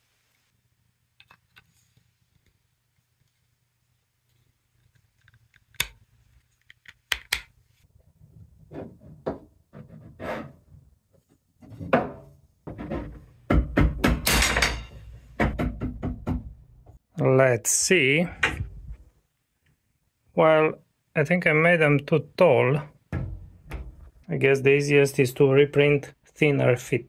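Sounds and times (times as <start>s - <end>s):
plastic parts clicking and knocking: 6.6s - 7.5s.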